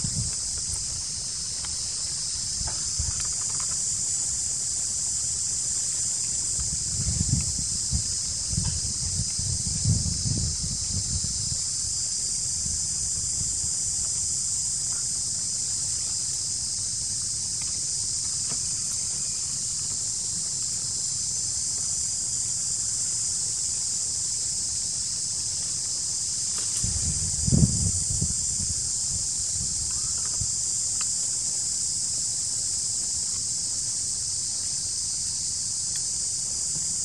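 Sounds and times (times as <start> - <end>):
wind rumbling on microphone: 0.0 - 20.4, 25.9 - 32.0
insect chorus drone: 0.0 - 37.0.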